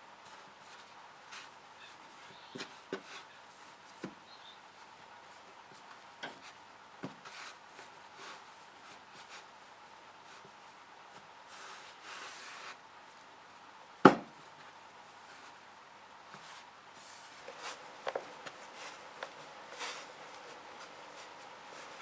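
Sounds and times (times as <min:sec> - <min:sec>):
hands kneading dough: 0:16.3 - 0:22.0.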